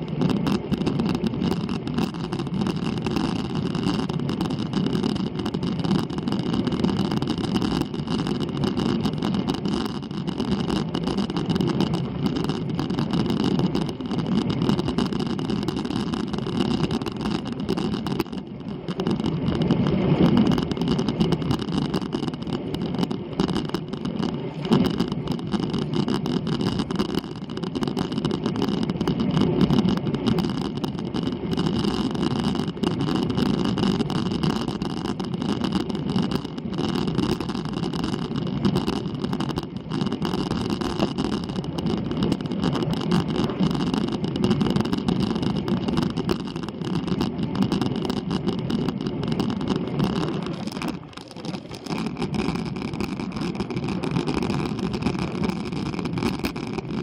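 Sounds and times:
bike drivetrain hum: 0.0 - 57.0
bike tyre road rumble: 0.0 - 57.0.

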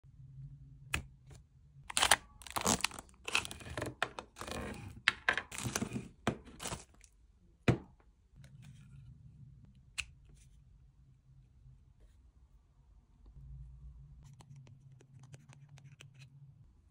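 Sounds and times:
plastic wrapping crinkling and tearing: 1.9 - 4.6, 6.5 - 7.0
knock on wooden table: 7.7 - 7.9.

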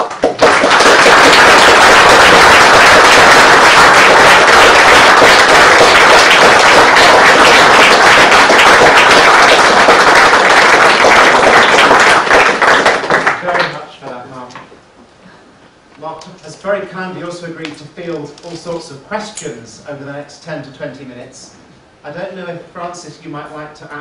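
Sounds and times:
audience applauding: 0.0 - 13.8.

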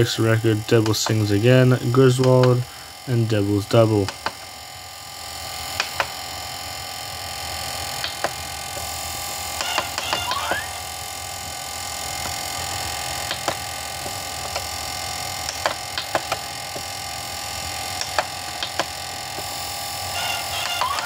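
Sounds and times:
electrical hum: 0.0 - 21.0
sharp clicks: 2.2 - 2.6, 4.0 - 4.4, 5.8 - 6.1, 15.4 - 16.4, 18.0 - 19.0.

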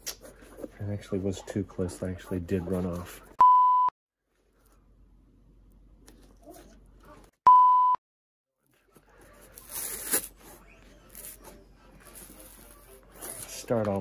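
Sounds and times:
loud steady beep: 3.4 - 3.9, 7.5 - 8.0.

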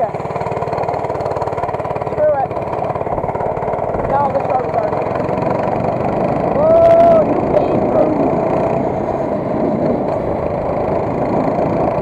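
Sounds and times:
minibike engine running: 0.0 - 12.0
wind noise on microphone: 6.5 - 12.0.

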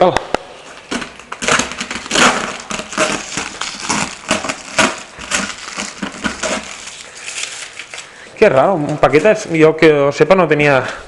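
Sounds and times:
cardboard crackling: 0.6 - 8.2
packing tape ripping: 0.6 - 8.2.

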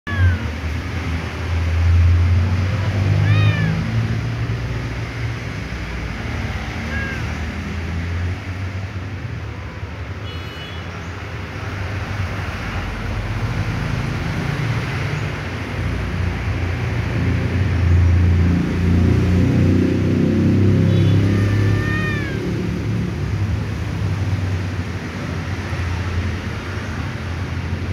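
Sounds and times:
cat meowing: 0.1 - 0.7, 3.1 - 4.2, 6.4 - 7.7, 20.9 - 22.7.

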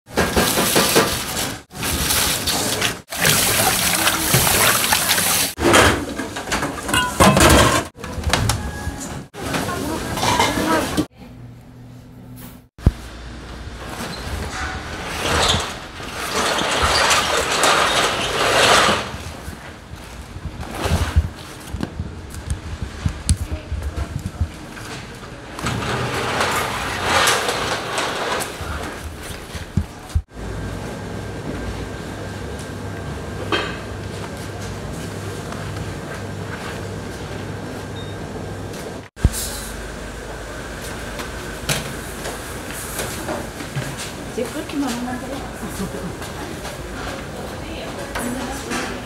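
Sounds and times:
water splashing and sloshing: 0.1 - 8.0
plastic curtain rustling: 15.0 - 21.8, 25.0 - 29.7.

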